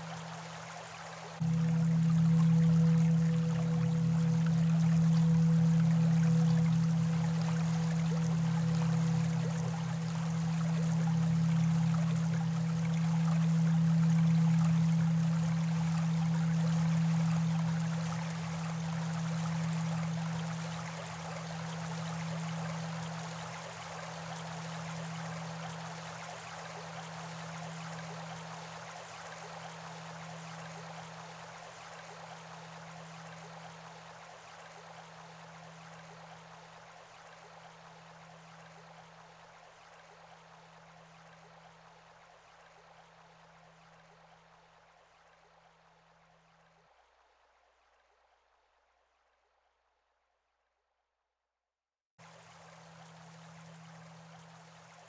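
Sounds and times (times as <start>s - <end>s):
low pulsing hum: 0.0s - 34.0s.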